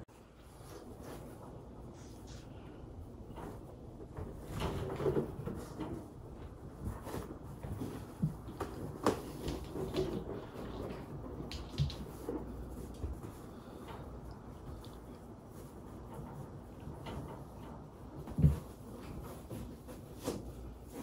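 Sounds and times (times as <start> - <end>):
balloons bumping and rubbing: 3.0 - 21.0.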